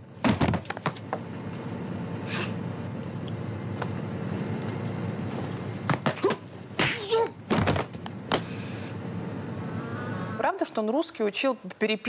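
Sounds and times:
soundtrack hiss: 0:08.3 - 0:11.5.

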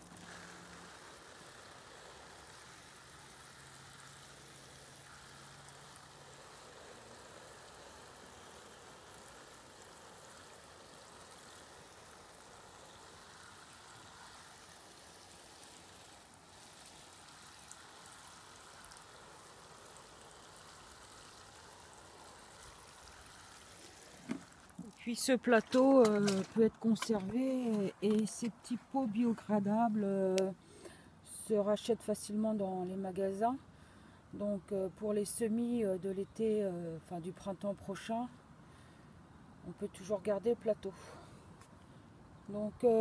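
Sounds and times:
watering can water patter: 0:00.0 - 0:30.5.

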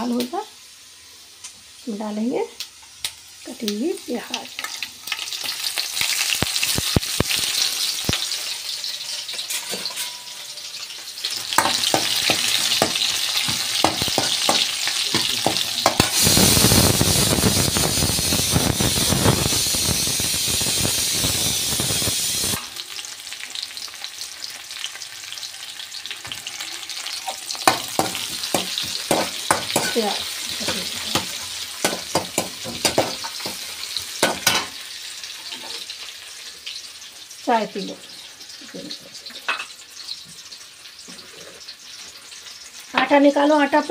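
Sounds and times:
onions sizzling in hot oil: 0:00.0 - 0:43.9
ladle scraping metal pan: 0:09.0 - 0:10.4.

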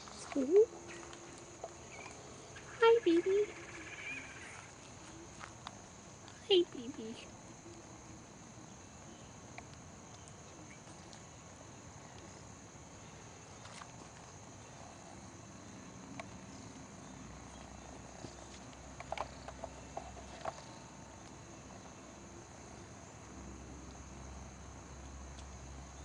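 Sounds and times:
high-pitched insect drone: 0:00.0 - 0:09.4.

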